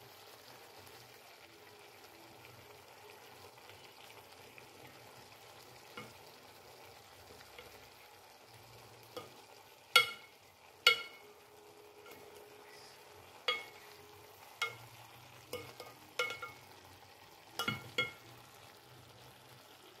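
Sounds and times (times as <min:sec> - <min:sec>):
faint sizzle: 0:00.0 - 0:20.0
spatula clanking against pan: 0:05.9 - 0:06.3, 0:09.1 - 0:11.3, 0:13.4 - 0:16.8, 0:17.6 - 0:18.3.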